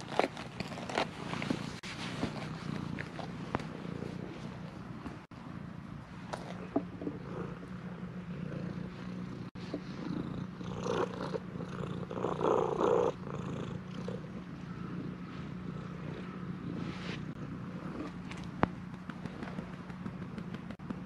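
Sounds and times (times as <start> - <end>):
fur rubbing and rustling: 0.0 - 4.6, 16.2 - 18.1
cat purring: 0.0 - 21.0.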